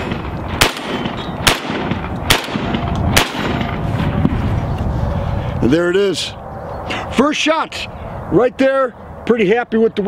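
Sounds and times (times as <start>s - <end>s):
shotgun shots: 0.0s - 3.8s.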